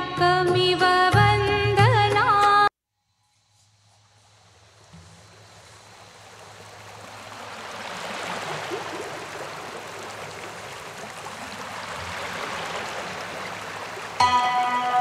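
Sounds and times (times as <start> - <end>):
churning water rushing: 4.0 - 15.0.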